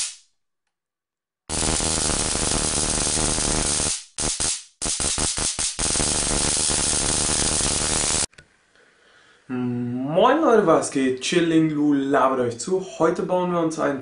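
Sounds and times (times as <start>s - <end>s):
high-voltage arc crackling buzz: 0.0s - 0.2s, 1.5s - 8.3s.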